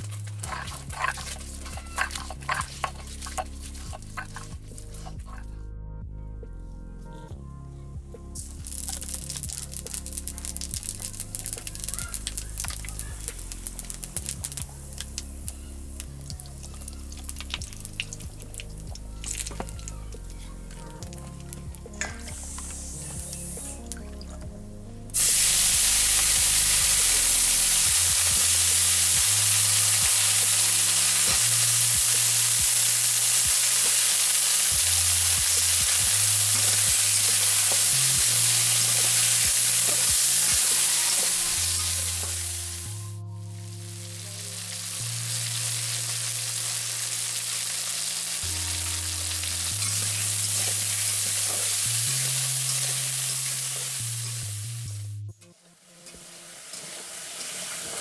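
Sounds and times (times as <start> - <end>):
vegetables sizzling in hot oil: 0.0 - 5.2, 8.7 - 15.4, 25.2 - 42.9, 43.7 - 55.0, 56.2 - 58.0
metal spatula clicking and scraping: 0.4 - 5.4.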